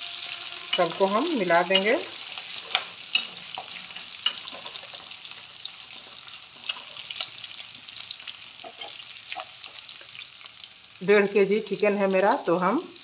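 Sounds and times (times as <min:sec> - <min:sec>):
metal spatula scraping a pan: 0:00.0 - 0:07.7
spices sizzling in hot oil: 0:00.0 - 0:13.0.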